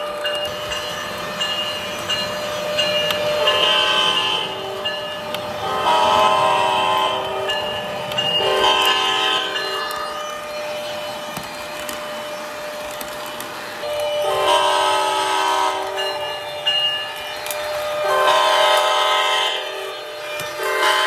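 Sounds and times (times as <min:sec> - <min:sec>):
model train wheels rolling: 0:00.0 - 0:21.0
model train horn blasts: 0:03.4 - 0:05.0, 0:05.6 - 0:07.6, 0:08.3 - 0:09.9, 0:13.8 - 0:16.1, 0:18.0 - 0:20.0, 0:20.6 - 0:21.0.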